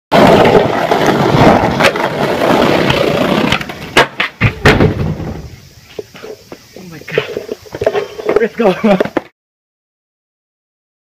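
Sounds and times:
skateboard clack: 0:00.1 - 0:06.6
board and skater slamming pavement: 0:00.1 - 0:09.3
skateboard wheels rolling on asphalt: 0:00.1 - 0:09.3.

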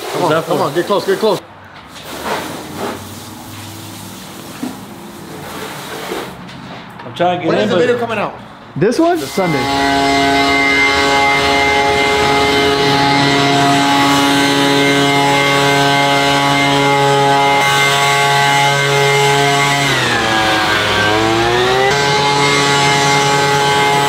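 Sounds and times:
leaf blower whining: 0:09.2 - 0:24.0.

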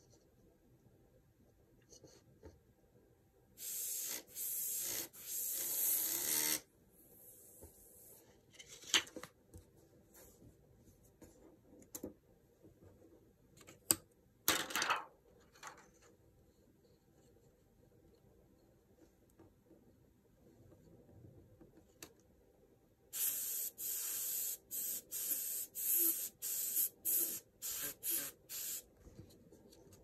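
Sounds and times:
airbrush hissing: 0:03.6 - 0:06.5, 0:23.1 - 0:28.9.

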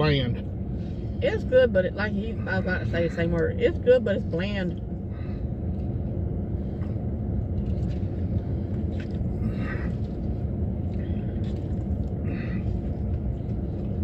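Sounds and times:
car idling from inside cabin: 0:00.0 - 0:14.0.

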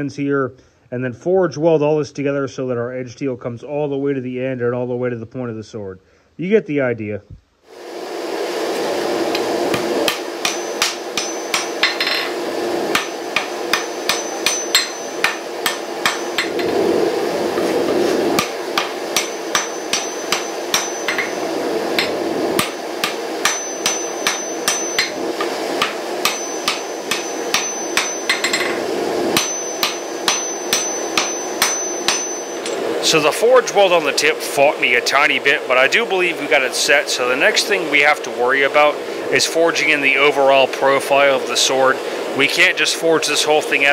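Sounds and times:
steady rushing noise: 0:07.7 - 0:43.9
hammer blows on hot steel: 0:09.3 - 0:16.9, 0:17.5 - 0:33.9.

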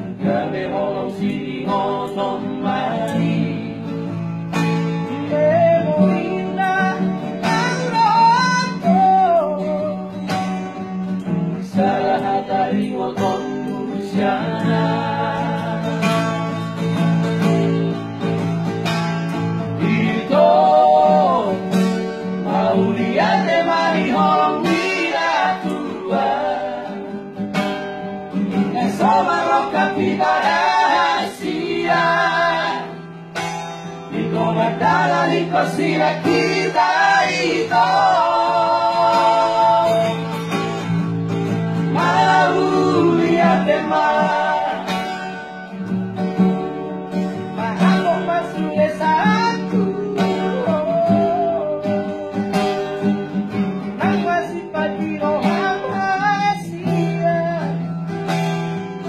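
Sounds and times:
men singing together: 0:00.0 - 0:04.2, 0:11.6 - 0:16.6, 0:19.6 - 0:27.2, 0:28.5 - 0:33.3, 0:34.0 - 0:40.7, 0:41.7 - 0:45.5, 0:47.5 - 0:52.8
strummed acoustic guitar: 0:00.0 - 0:59.0.

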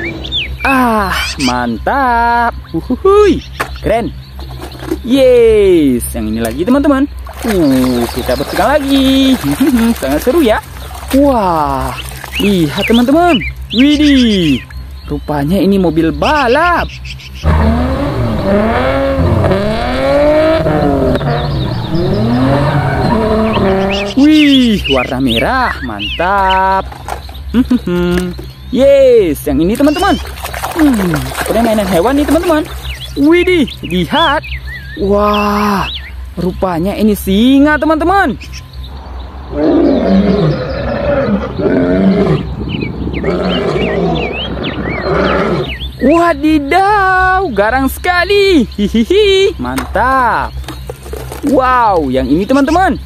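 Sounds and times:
sports car engine revving: 0:17.1 - 0:24.9
lion roaring: 0:17.4 - 0:24.2, 0:39.5 - 0:45.8.

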